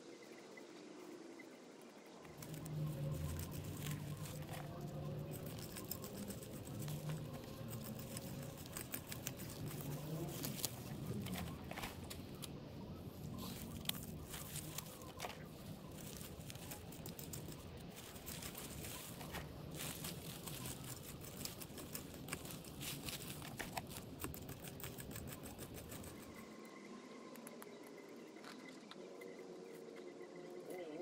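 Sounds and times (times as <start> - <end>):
low rumble: 2.3 - 23.9
dry garden debris crunching: 2.4 - 12.4, 13.3 - 24.5.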